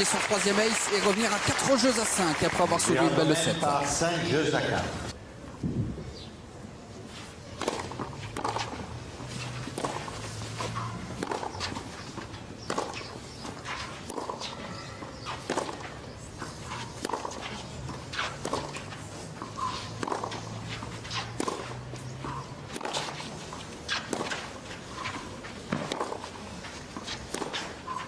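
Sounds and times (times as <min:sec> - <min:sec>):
racket striking tennis ball: 0:07.2 - 0:28.0
ball bouncing: 0:07.6 - 0:26.3.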